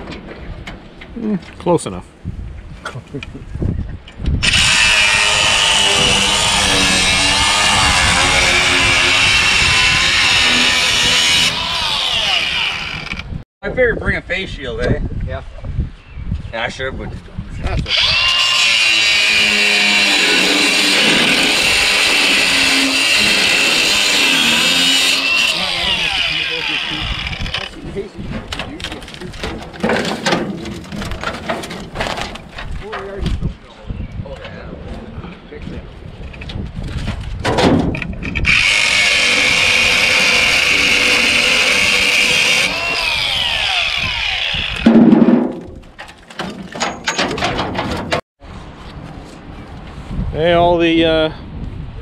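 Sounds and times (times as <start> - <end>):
angle grinder cutting steel: 4.4 - 13.3, 17.9 - 27.7, 38.4 - 44.9
loud thud: 44.8 - 45.8.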